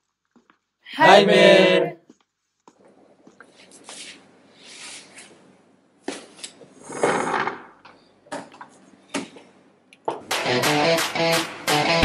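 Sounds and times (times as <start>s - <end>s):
chair scraping: 6.4s - 7.8s.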